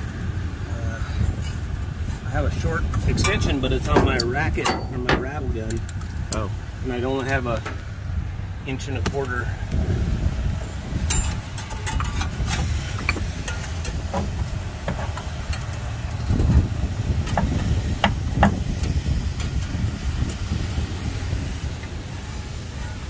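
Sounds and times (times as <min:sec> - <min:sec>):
steady low rumble: 0:00.0 - 0:23.0
metal tools clinking on engine: 0:02.9 - 0:06.4, 0:11.0 - 0:19.7, 0:22.8 - 0:23.0.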